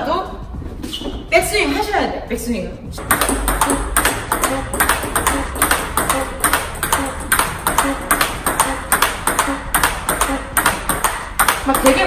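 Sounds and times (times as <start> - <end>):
table tennis ball bouncing on table: 3.0 - 12.0
table tennis ball hitting paddles: 3.0 - 12.0.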